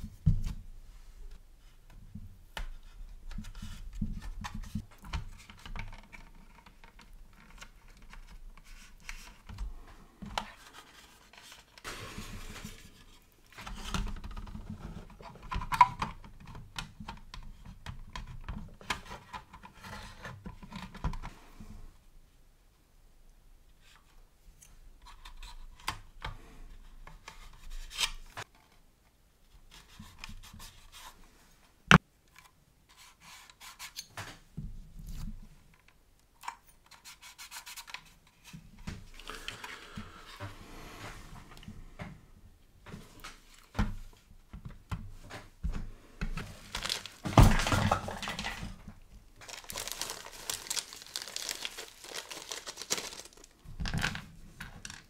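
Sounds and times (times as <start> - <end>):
plastic parts rubbing and scraping: 46.4 - 55.0.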